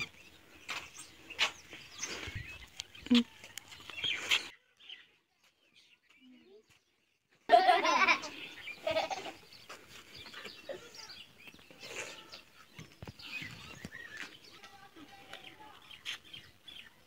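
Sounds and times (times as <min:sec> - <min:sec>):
small birds chirping: 0:00.0 - 0:17.0.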